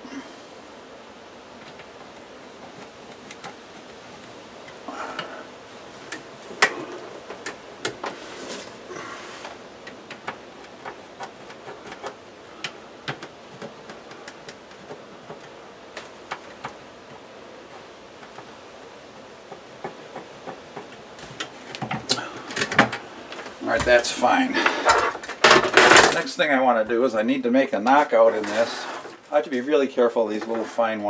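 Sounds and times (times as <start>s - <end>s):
rustling: 0.0s - 31.0s.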